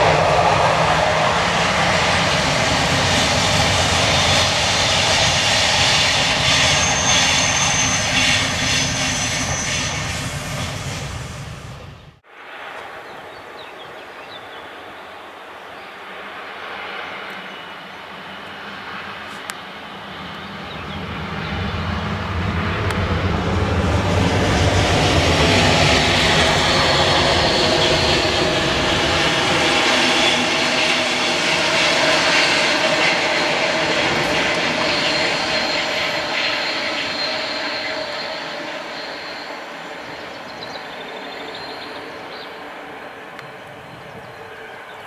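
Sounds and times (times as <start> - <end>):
locomotive hum: 18.8 - 45.0
train wheels rumbling on rail: 22.1 - 39.4.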